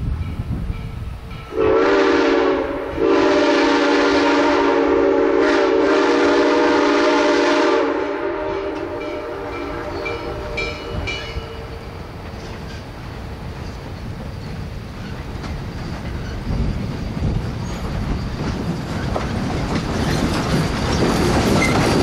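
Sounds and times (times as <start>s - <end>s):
train approaching under steam: 0.0s - 22.0s
steam locomotive whistle chord: 1.5s - 11.9s.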